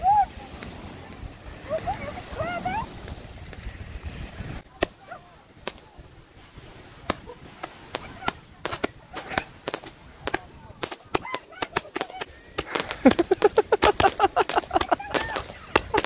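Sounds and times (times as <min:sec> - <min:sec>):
firework shots cracking: 0:04.6 - 0:16.0.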